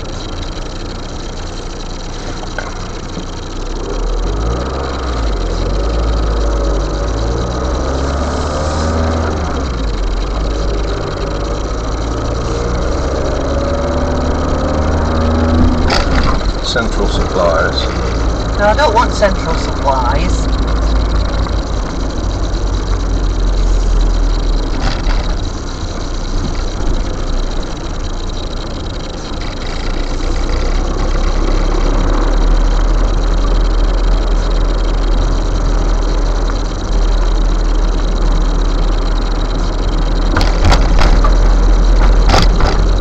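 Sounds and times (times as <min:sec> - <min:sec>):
car engine and road rumble: 0:00.0 - 0:43.0
sharp rattling clicks: 0:00.0 - 0:43.0.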